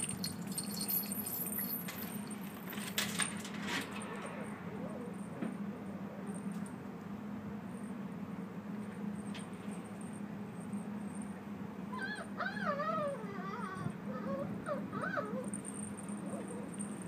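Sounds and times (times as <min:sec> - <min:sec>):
dog whimpering: 0:11.9 - 0:17.0.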